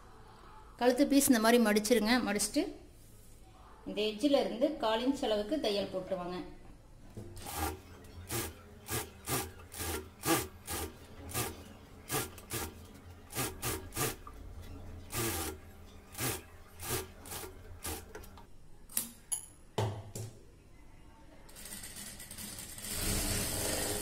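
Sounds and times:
sewing machine motor hum: 0:07.4 - 0:18.4, 0:22.2 - 0:24.0.

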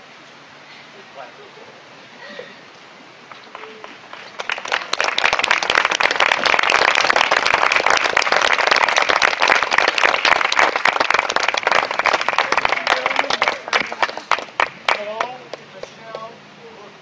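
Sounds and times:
crowd applauding: 0:03.3 - 0:16.0.

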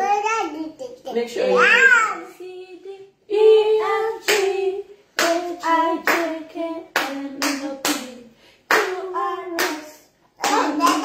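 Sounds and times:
people singing: 0:02.3 - 0:11.0
hands clapping: 0:04.3 - 0:04.5, 0:05.2 - 0:06.4, 0:07.0 - 0:08.1, 0:08.7 - 0:11.0.

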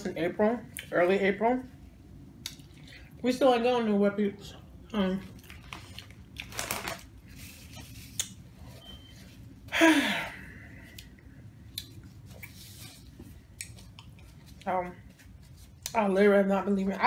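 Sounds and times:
paper napkin rustling: 0:06.5 - 0:09.5
breathy sigh: 0:09.7 - 0:11.0.

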